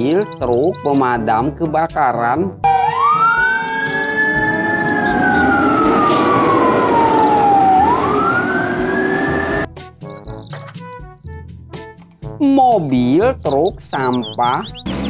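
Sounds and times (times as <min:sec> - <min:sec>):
fire engine siren wailing: 0:02.6 - 0:09.7.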